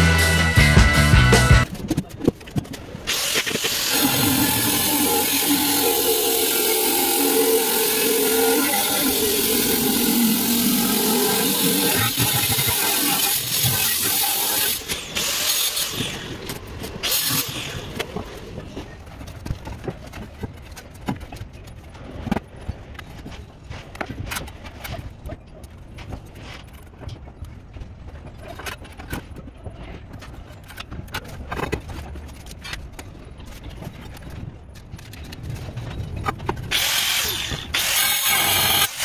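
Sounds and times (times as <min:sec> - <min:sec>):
loud mechanical noise with hiss: 0:03.1 - 0:16.3, 0:36.7 - 0:39.0.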